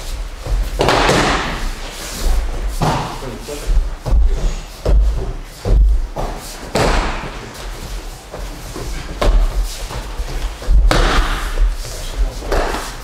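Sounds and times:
bodies thudding on mats: 0.0 - 3.2, 3.9 - 13.0
sharp knocks: 0.8 - 1.7, 5.7 - 7.4, 10.7 - 11.7.

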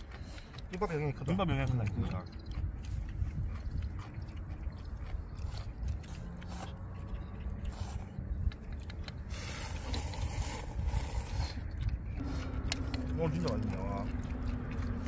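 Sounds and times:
steady low rumble: 0.0 - 15.0
slurping noodles: 7.6 - 8.2, 9.1 - 15.0.

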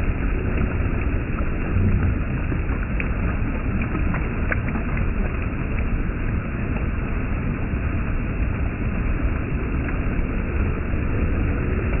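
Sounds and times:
water rushing over concrete step: 0.0 - 12.0.

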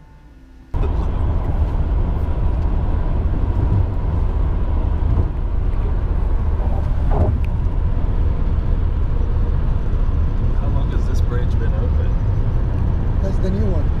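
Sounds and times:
car road and engine rumble: 0.6 - 14.0.

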